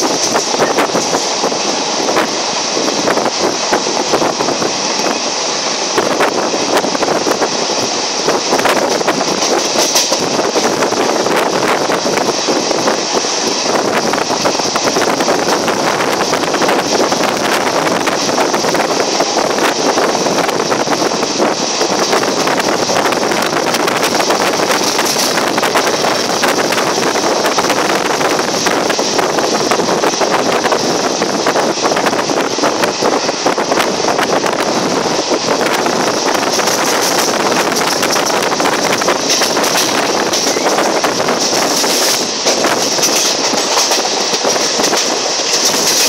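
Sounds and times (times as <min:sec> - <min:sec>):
train running on rails: 0:00.0 - 0:46.0
wind buffeting microphone: 0:00.0 - 0:46.0.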